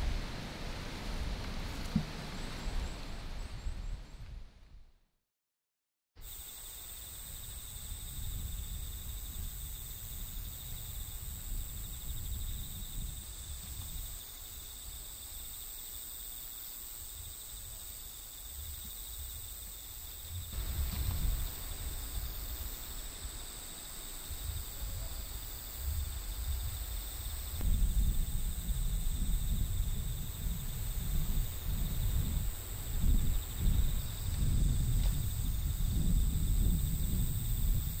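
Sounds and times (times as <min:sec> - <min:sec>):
insects chirring: 0:06.2 - 0:38.0
low rumble: 0:24.6 - 0:38.0.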